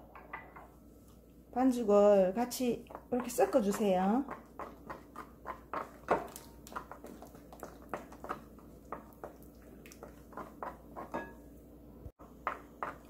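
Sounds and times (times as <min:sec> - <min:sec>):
wooden spoon stirring batter: 0:02.5 - 0:11.6.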